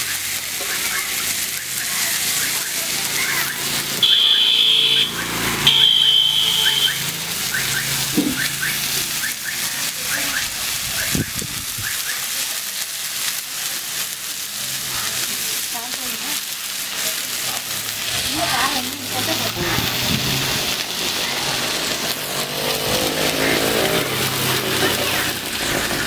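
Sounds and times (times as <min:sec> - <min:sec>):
fish frying in hot oil: 0:00.0 - 0:26.0
high steady beeps: 0:03.4 - 0:09.6.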